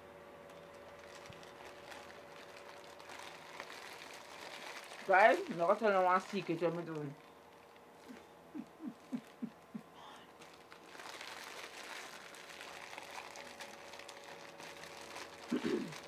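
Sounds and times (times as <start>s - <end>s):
plastic wrappers crinkling: 0.4s - 8.2s, 10.3s - 16.0s
muffled vocal sounds: 8.0s - 10.4s.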